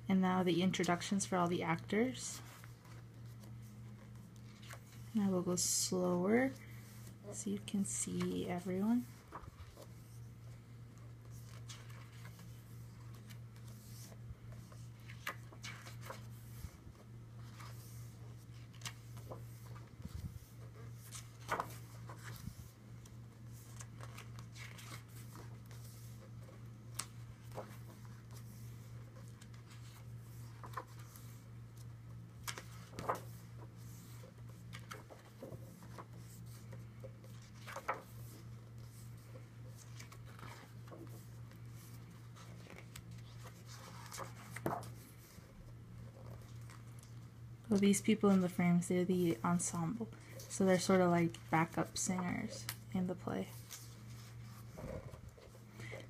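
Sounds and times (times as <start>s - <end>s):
steady low hum: 0.0s - 56.0s
pages being turned: 2.4s - 5.1s, 7.8s - 47.3s, 53.5s - 56.0s.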